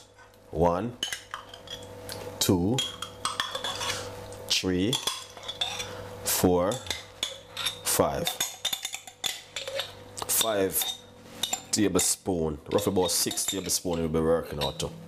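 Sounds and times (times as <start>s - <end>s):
metal spoon scraping glass jar: 3.5s - 4.1s, 4.9s - 5.9s, 12.7s - 14.8s.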